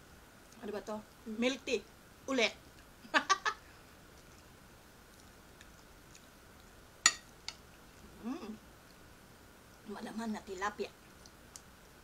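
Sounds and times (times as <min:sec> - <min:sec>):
quiet chewing: 0:00.4 - 0:01.3, 0:02.6 - 0:02.9, 0:03.6 - 0:09.1, 0:11.0 - 0:12.0
metal spoon clinking on plate: 0:07.0 - 0:07.2.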